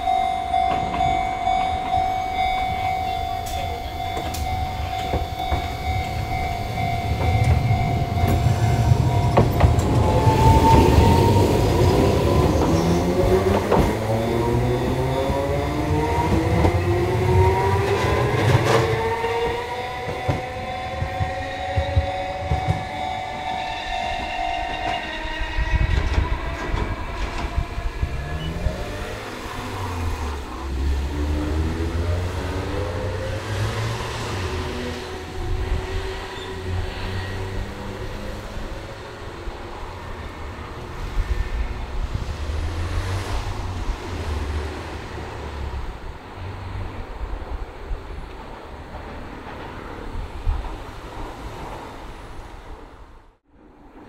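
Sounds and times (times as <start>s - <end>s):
wheels clattering over rail joints: 0.0s - 23.7s
tram motor whine: 0.0s - 43.4s.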